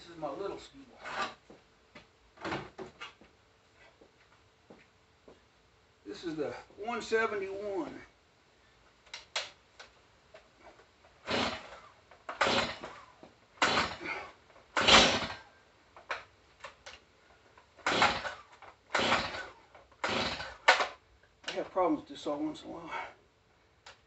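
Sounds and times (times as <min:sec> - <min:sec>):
chainsaw starter cord pulls: 0:11.2 - 0:16.3, 0:17.8 - 0:21.6.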